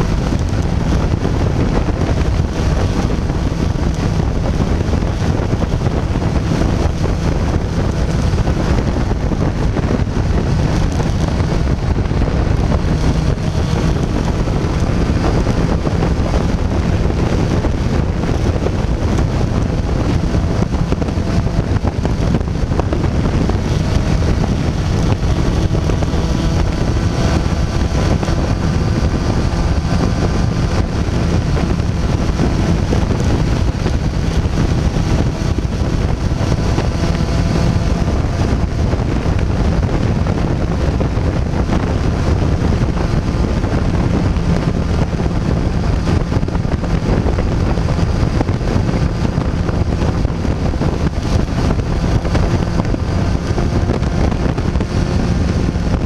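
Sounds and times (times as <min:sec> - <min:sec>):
motorcycle engine drone: 0:00.0 - 0:56.0
wind rushing over microphone: 0:00.0 - 0:56.0.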